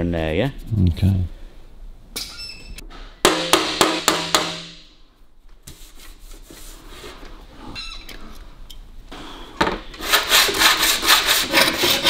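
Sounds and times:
scraping and rubbing on metal panel: 10.0 - 12.0.

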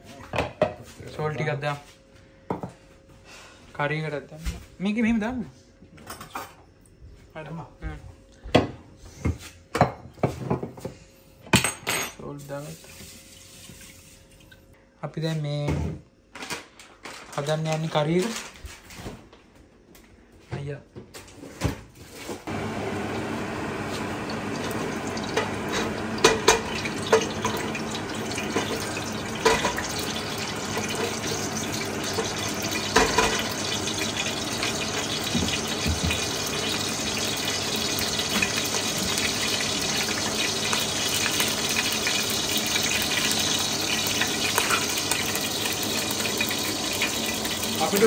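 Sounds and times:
spices sizzling in hot oil: 22.5 - 48.0.

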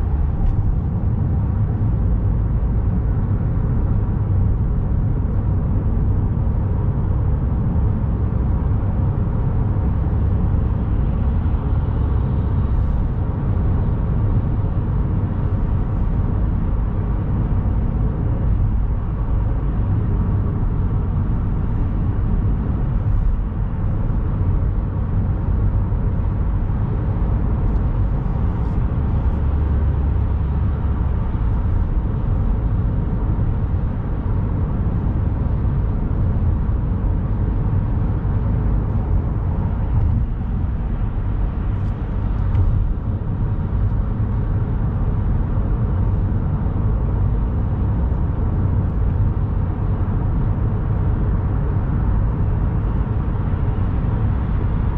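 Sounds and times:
car tyre and engine rumble: 0.0 - 54.9.

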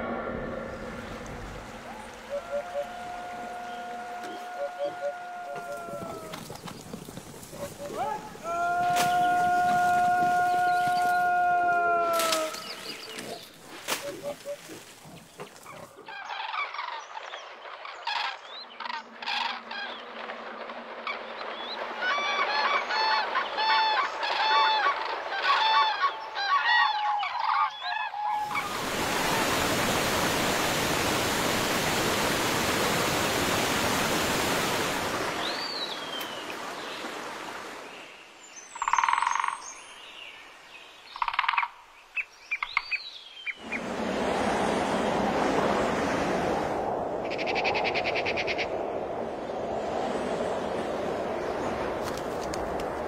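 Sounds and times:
bird calls: 0.7 - 11.5, 12.2 - 20.3, 38.0 - 43.8
river rushing over rocks: 28.4 - 37.9.

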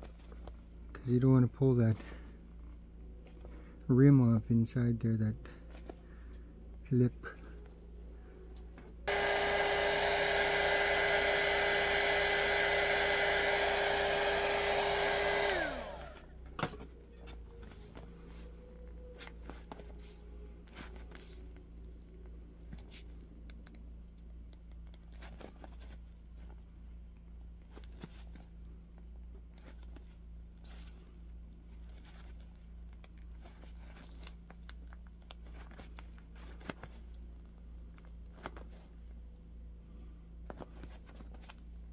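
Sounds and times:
heat gun blowing: 9.1 - 16.2.

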